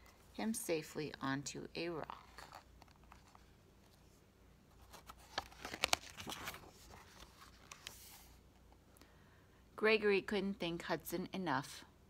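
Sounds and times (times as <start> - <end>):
book page turning: 2.0 - 8.4.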